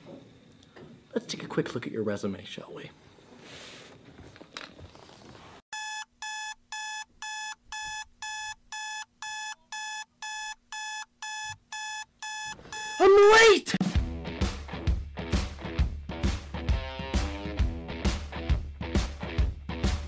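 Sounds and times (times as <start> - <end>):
alarm clock beeping: 5.7 - 13.3.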